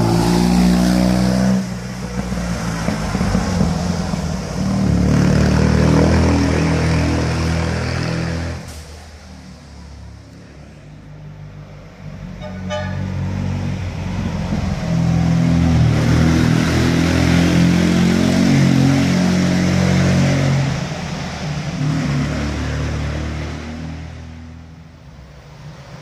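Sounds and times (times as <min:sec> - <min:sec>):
car horn toot: 0:12.4 - 0:13.1.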